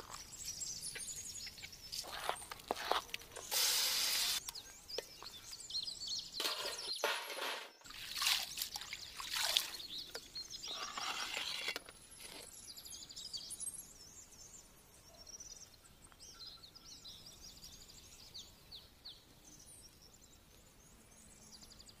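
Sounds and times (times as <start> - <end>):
faint birds chirping: 0.0 - 22.0
spatula scraping metal pan: 10.7 - 11.8.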